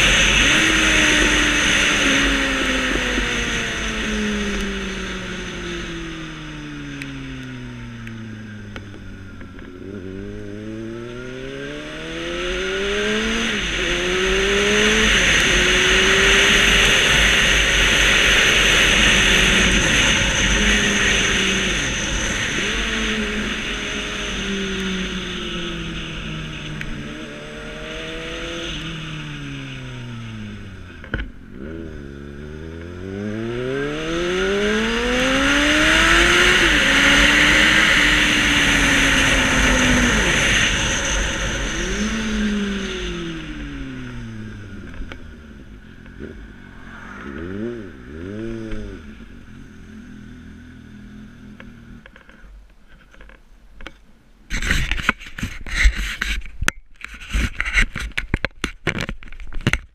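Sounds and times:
motorcycle engine accelerating: 0:00.0 - 0:52.5
wind rushing over microphone: 0:11.5 - 0:30.8, 0:32.6 - 0:49.9.

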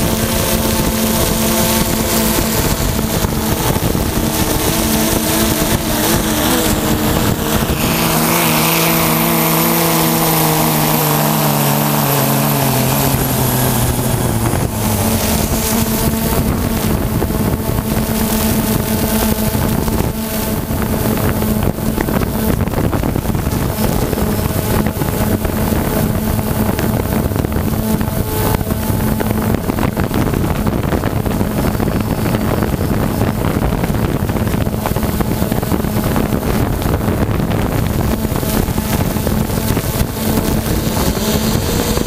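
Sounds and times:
drone propellers buzzing: 0:00.0 - 0:42.0
wind on microphone: 0:00.0 - 0:42.0.

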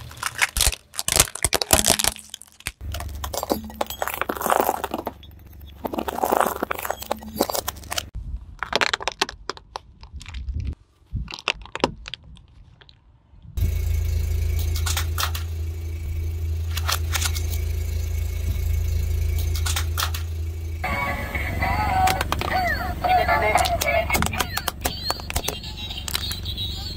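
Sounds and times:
objects cracking under tyre: 0:00.0 - 0:13.6, 0:23.6 - 0:26.9
car engine running: 0:02.8 - 0:08.1, 0:13.6 - 0:26.9.

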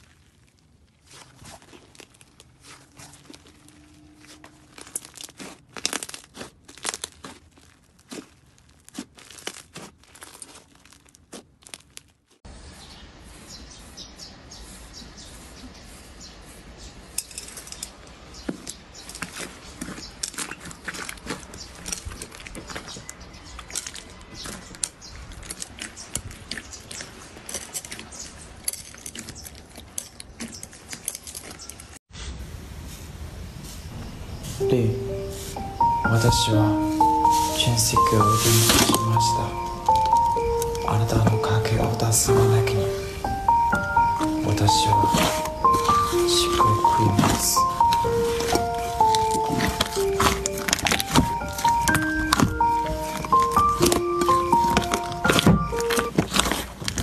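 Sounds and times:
hands stretching crackling slime: 0:00.0 - 0:12.4, 0:18.4 - 0:31.7, 0:43.7 - 0:57.0.

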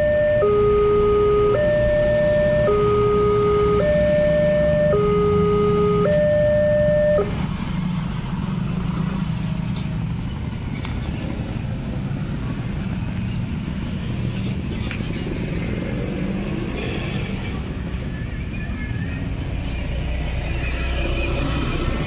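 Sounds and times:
level crossing warning alarm: 0:00.0 - 0:07.4.

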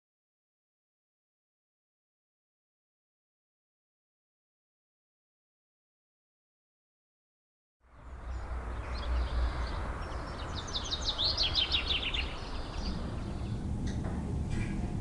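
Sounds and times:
low rumble and hiss: 0:07.9 - 0:15.0
bird singing: 0:08.0 - 0:14.8.

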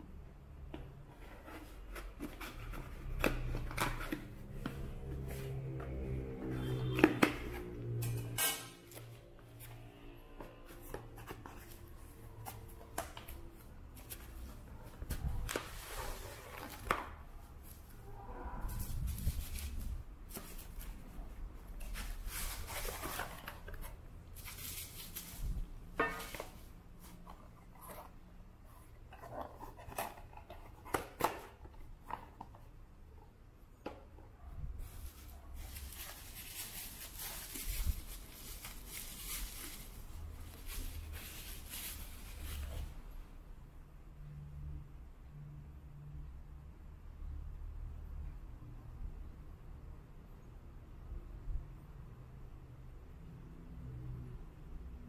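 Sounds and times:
cardboard box rustling: 0:21.8 - 0:32.5, 0:34.8 - 0:43.0.

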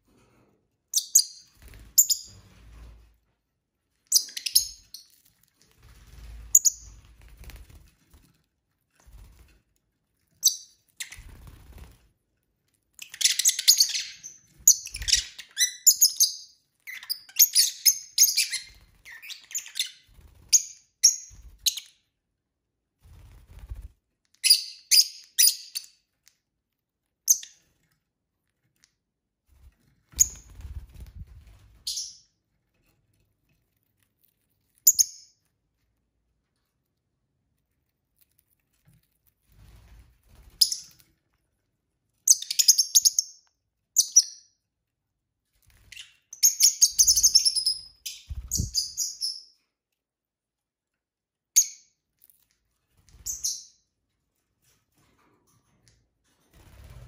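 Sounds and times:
lovebirds chirping: 0:04.1 - 0:05.2, 0:13.0 - 0:22.0, 0:45.8 - 0:49.6.

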